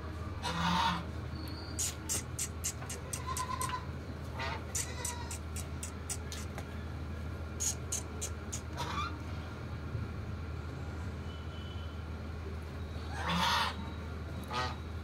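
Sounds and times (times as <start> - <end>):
sharp high-pitched clicks: 1.8 - 3.8, 4.8 - 6.6, 7.6 - 8.8
steady low hum: 1.8 - 9.0
goat bleating: 1.9 - 3.9, 4.7 - 6.3.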